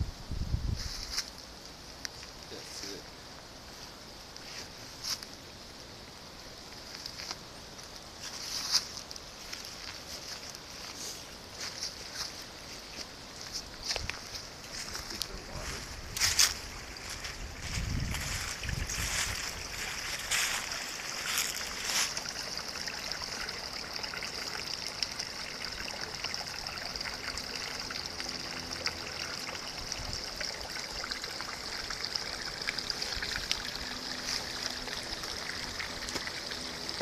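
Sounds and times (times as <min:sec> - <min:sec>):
creek babbling over rocks: 0:18.3 - 0:37.0.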